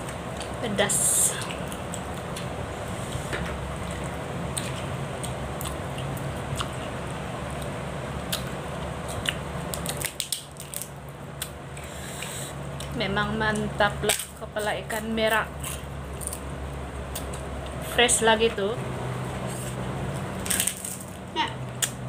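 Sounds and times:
low background hum: 0:00.0 - 0:22.0
person chewing and smacking: 0:03.8 - 0:13.0
small clicks and crunches: 0:08.3 - 0:11.6, 0:19.6 - 0:22.0.

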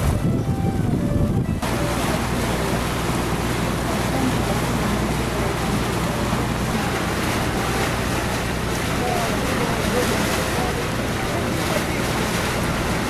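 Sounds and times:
wind noise on microphone: 0:00.0 - 0:01.9
boat engine humming: 0:00.0 - 0:13.0
rushing water: 0:00.0 - 0:13.0.

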